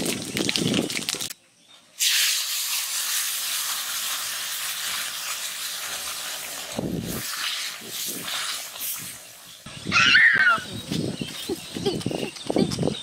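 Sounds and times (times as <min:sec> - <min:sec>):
vegetables sizzling in hot oil: 0:02.0 - 0:07.8.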